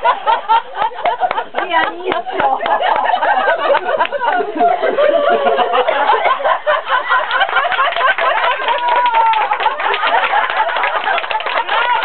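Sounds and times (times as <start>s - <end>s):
people laughing: 0.0s - 12.0s
people talking: 0.0s - 12.0s
hand claps: 1.0s - 4.5s, 7.2s - 12.0s.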